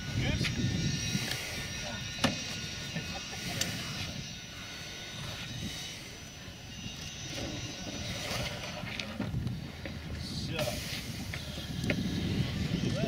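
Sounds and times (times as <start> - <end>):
distant aircraft engine drone: 0.0 - 13.0
low wind rumble: 0.0 - 13.0.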